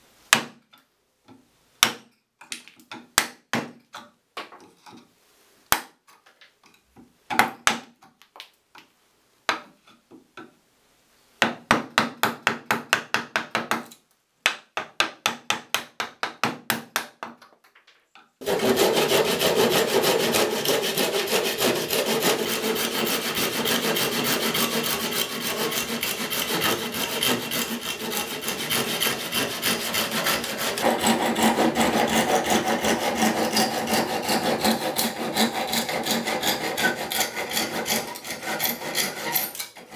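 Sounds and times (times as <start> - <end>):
pull saw cutting wood: 18.4 - 39.9.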